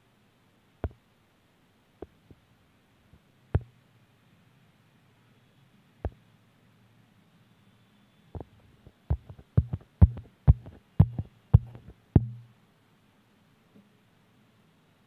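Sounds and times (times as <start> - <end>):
dull thumps and taps: 8.4 - 12.5.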